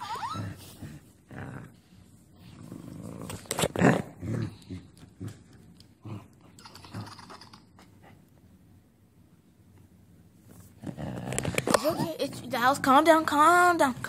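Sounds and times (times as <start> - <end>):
small dog growling and grunting: 0.0 - 7.6, 10.8 - 12.4.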